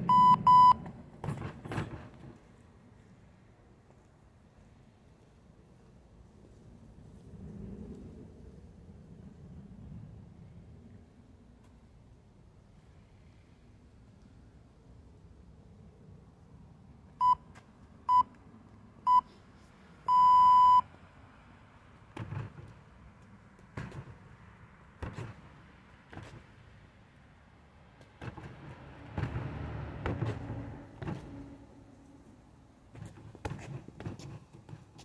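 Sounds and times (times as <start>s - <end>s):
interval timer beeps: 0.1s - 0.8s, 20.1s - 20.8s.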